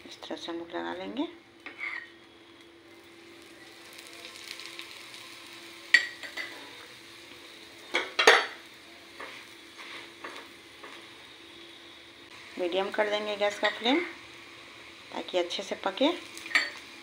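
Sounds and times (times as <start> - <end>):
steel spoon scraping and clinking: 1.6 - 2.1, 16.5 - 16.8
oil sizzling on a hot pan: 1.6 - 17.0.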